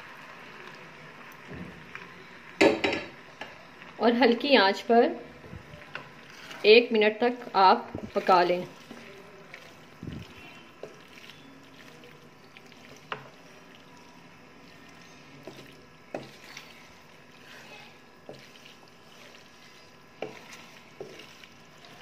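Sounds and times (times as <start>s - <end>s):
spatula scraping pan: 5.9s - 13.6s, 14.6s - 22.0s.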